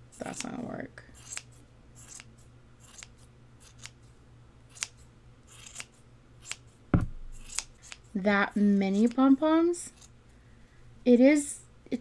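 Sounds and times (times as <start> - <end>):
scissors snipping yarn: 0.2 - 0.6, 1.2 - 4.0, 4.7 - 8.1.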